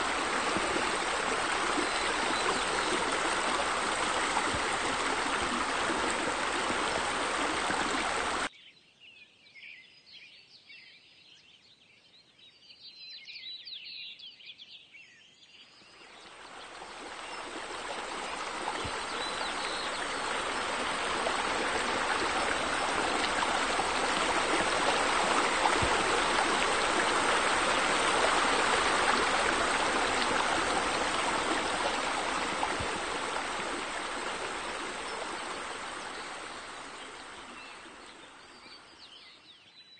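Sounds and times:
running water: 0.0 - 8.5, 16.2 - 38.9.

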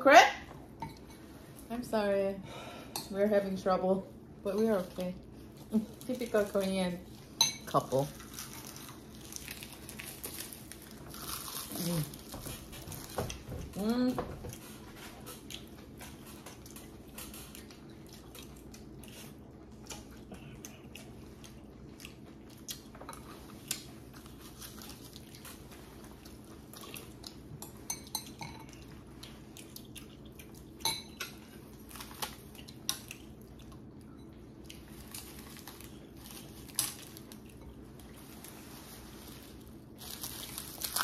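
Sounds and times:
steady low hum: 0.0 - 41.0
chewing: 14.5 - 27.5, 28.6 - 30.8.

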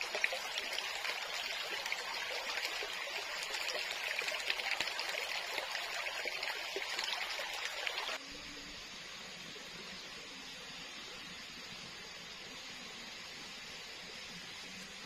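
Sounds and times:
stream trickling over stones: 0.0 - 8.2
steady hiss: 8.2 - 15.0.

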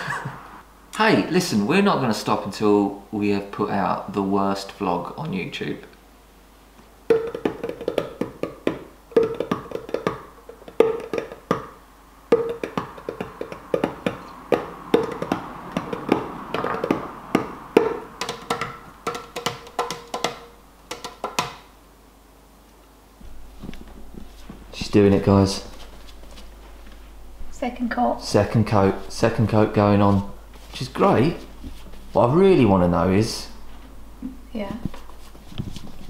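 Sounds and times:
music with percussive beat: 7.1 - 11.7, 12.3 - 21.6.

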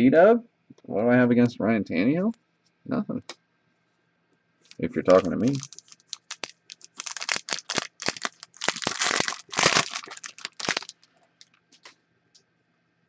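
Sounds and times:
foil pack tearing and crinkling: 4.7 - 11.6.

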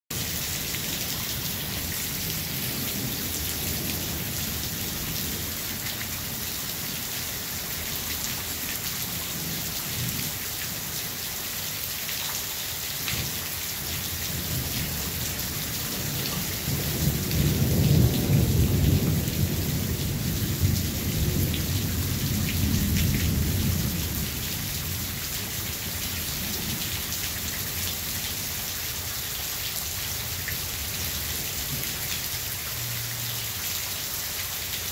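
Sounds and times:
steady rain hissing: 0.6 - 33.6
low thunder rumble: 16.0 - 25.0.

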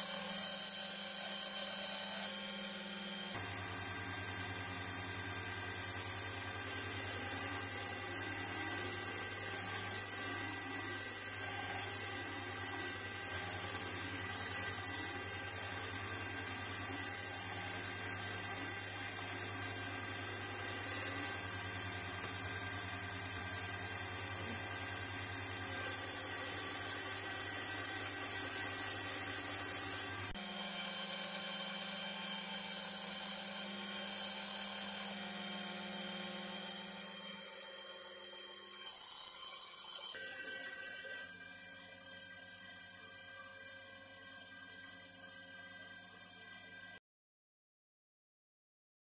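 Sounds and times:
electric sander running: 0.0 - 3.4, 30.3 - 40.1.

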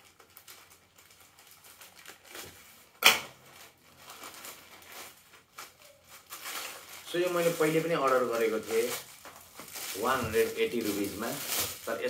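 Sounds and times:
plastic bag rustling: 0.0 - 12.0
plastic bag snap: 2.1 - 3.4.

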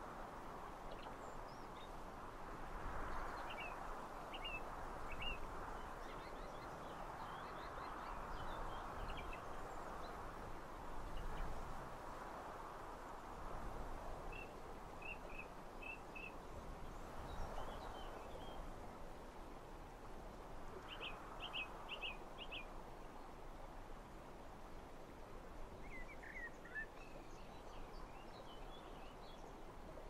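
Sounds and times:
songbirds chirping: 3.0 - 10.3, 25.6 - 30.0.

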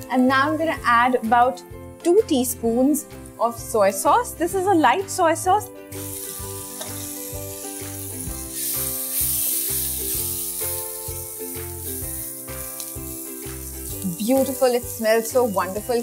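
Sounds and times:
background music: 0.0 - 16.0
sauce sizzling in a wok: 5.8 - 16.0.

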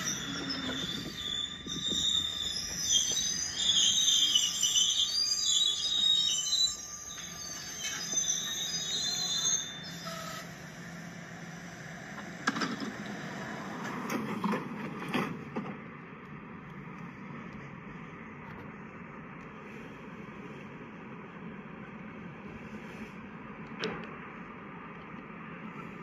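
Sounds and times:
high squeal: 0.0 - 13.8.

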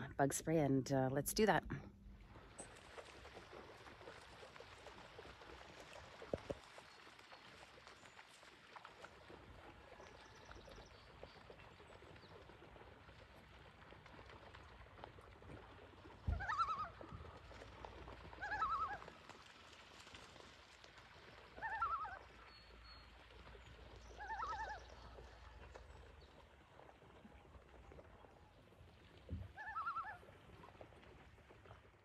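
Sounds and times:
loons quavering calls: 16.4 - 17.0, 29.6 - 30.2.

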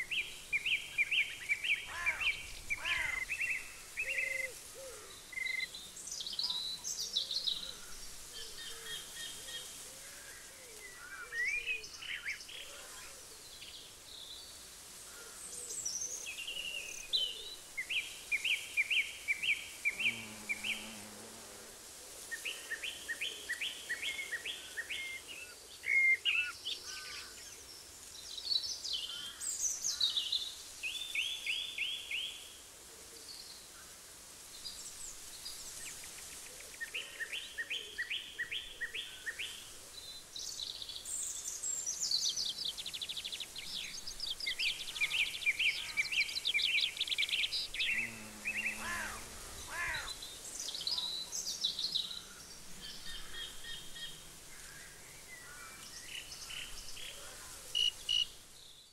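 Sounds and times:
songbirds singing trills: 0.0 - 9.7, 34.6 - 58.9
faint outdoor hiss: 0.0 - 58.9.

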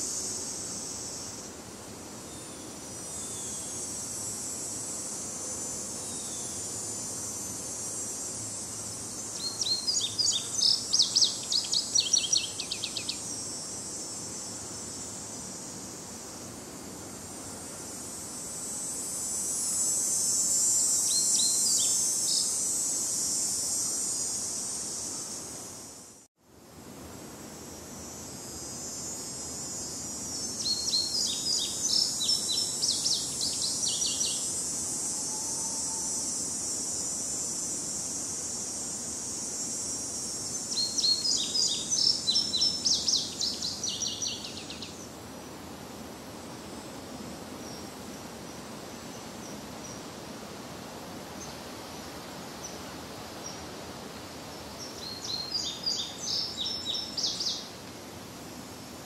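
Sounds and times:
high hiss: 0.0 - 59.0
songbird singing: 9.0 - 13.7, 20.8 - 22.7, 30.4 - 34.6, 40.5 - 45.1, 54.5 - 57.8.

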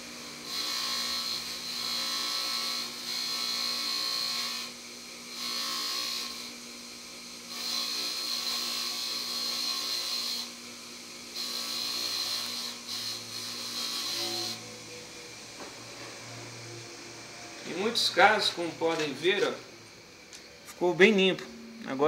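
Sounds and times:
bench grinder motor hum: 0.0 - 22.0
metal scraping on grinding wheel: 11.4 - 19.6.

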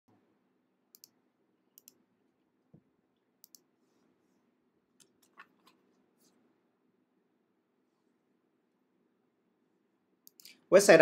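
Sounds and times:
low room hum: 0.1 - 11.0
computer mouse clicks: 0.9 - 1.2, 1.8 - 2.0, 3.4 - 3.7, 5.0 - 5.8, 10.2 - 10.6.

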